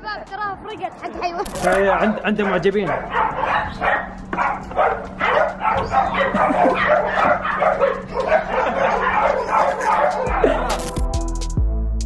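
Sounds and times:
puppies barking and yapping: 1.5 - 10.8.

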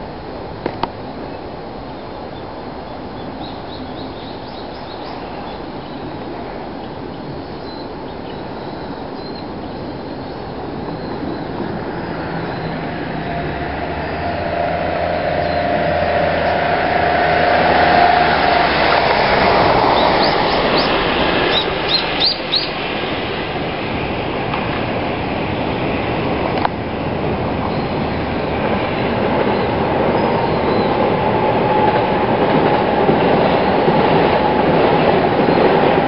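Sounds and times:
passing train rumble: 0.0 - 36.0
bird chirps: 19.9 - 22.8.

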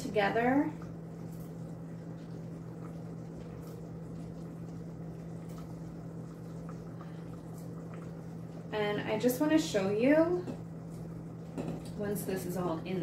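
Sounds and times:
low hum: 0.0 - 13.0
soup simmering: 0.3 - 12.0.

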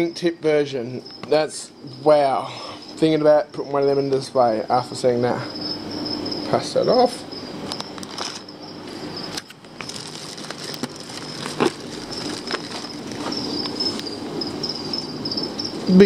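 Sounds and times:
plastic bags crinkling: 8.0 - 8.4, 9.4 - 14.1
steady high-pitched trill: 10.6 - 16.0.

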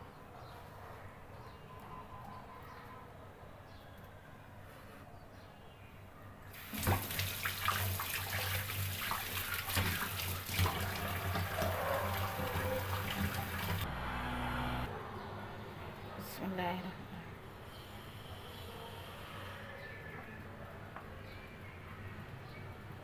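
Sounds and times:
water running from tap: 6.6 - 13.8.

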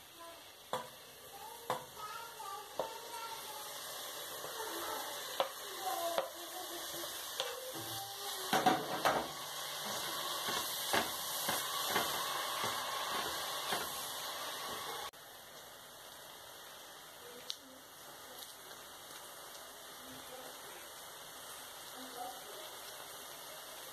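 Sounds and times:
leaves sizzling in a pot: 0.0 - 23.9
wooden spoon scraping a pot: 8.9 - 14.0.

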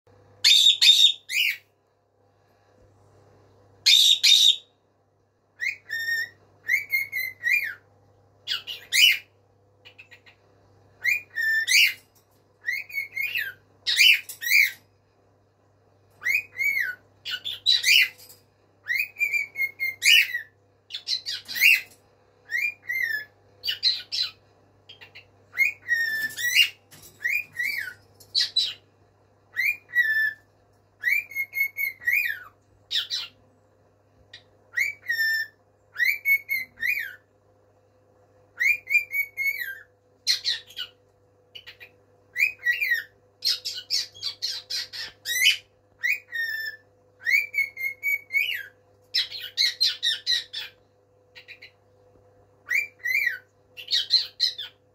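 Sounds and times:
cockatiel whistled calls: 0.4 - 1.7, 3.8 - 4.7, 5.6 - 7.8, 8.5 - 10.4, 11.0 - 12.0, 12.6 - 14.8, 16.2 - 18.2, 18.8 - 28.8, 29.5 - 33.4, 34.3 - 37.2, 38.6 - 41.0, 41.6 - 50.8, 51.4 - 51.7, 52.6 - 54.8.

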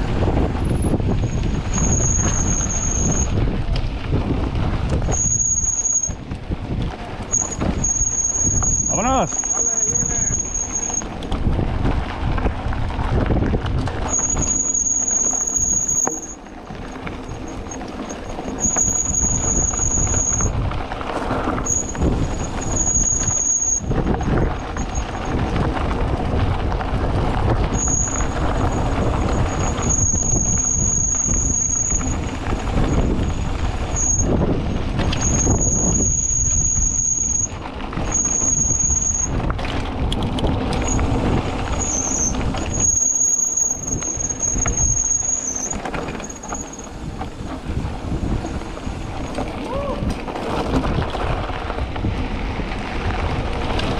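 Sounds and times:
tyres over loose dirt: 0.0 - 53.9
wind on microphone: 0.0 - 53.9
high-pitched brake squeal: 0.8 - 3.4, 5.0 - 6.2, 7.3 - 11.2, 14.0 - 20.6, 21.4 - 25.4, 27.7 - 39.5, 40.7 - 47.6.

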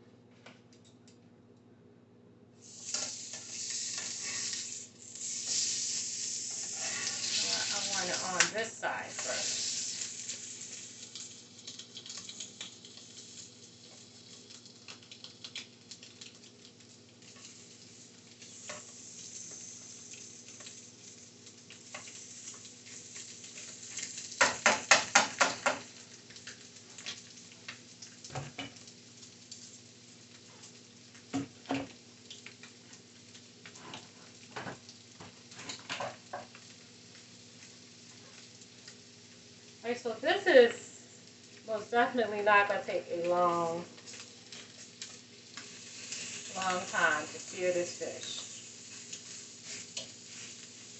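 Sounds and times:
fish sizzling in a skillet: 2.6 - 50.9
tongs clicking and clattering: 9.1 - 20.8.

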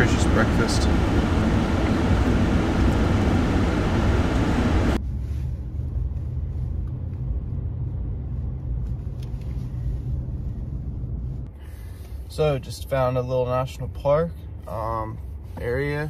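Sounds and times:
truck engine low rumble: 0.0 - 12.6
rushing noise inside truck cab: 0.0 - 16.0.

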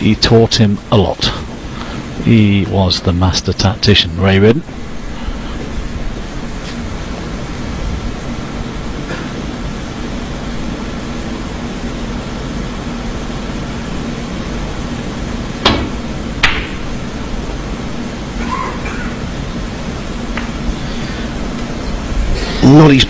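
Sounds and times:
hum of hushed arena: 8.7 - 14.2, 15.5 - 23.0.

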